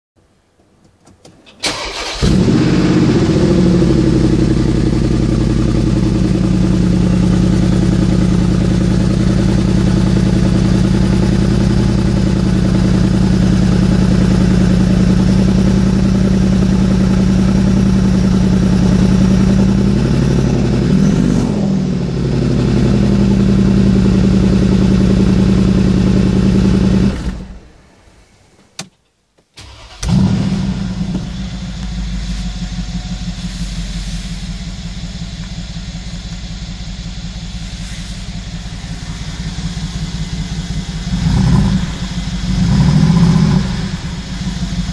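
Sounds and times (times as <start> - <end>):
engine starter cranking: 1.3 - 2.6, 29.6 - 30.7
engine revving: 1.6 - 27.6, 29.6 - 32.4, 38.7 - 44.9
car engine idling loudly: 1.8 - 27.7, 30.1 - 44.9.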